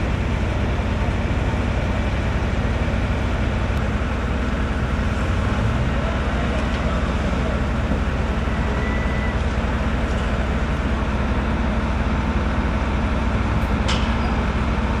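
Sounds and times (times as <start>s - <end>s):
heavy diesel engines rumbling: 0.0s - 15.0s.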